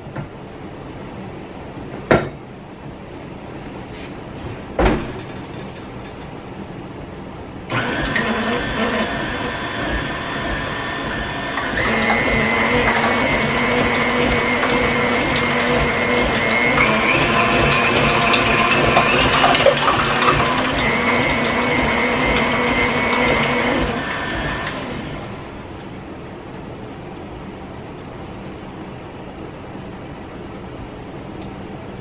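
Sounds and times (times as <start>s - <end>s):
electric kitchen mixer running: 7.7s - 25.6s.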